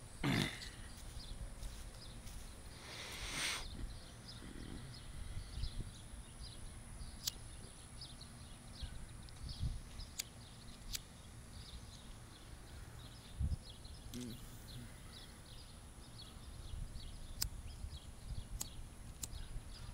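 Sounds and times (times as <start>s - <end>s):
low rumble of wind: 0.0s - 19.9s
small birds chirping: 0.0s - 19.9s
sharp clicks: 7.2s - 7.5s, 9.2s - 11.1s, 17.4s - 17.6s, 18.6s - 19.4s.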